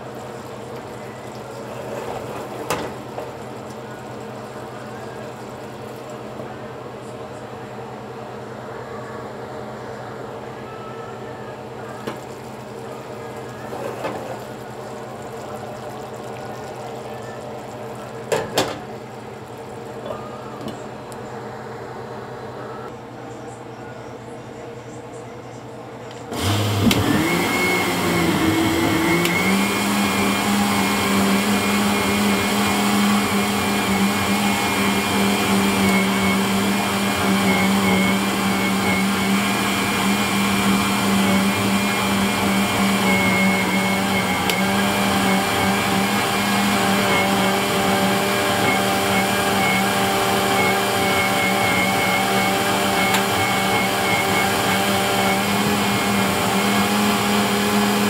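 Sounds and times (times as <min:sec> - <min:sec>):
blender motor whining: 0:26.3 - 0:58.0.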